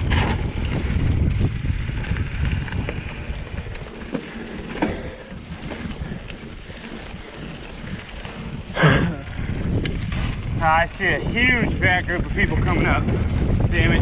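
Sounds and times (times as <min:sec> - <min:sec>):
bike clicks and rattles: 0:00.0 - 0:14.0
mountain bike rolling on dirt: 0:00.0 - 0:14.0
wind rumbling on microphone: 0:00.0 - 0:14.0.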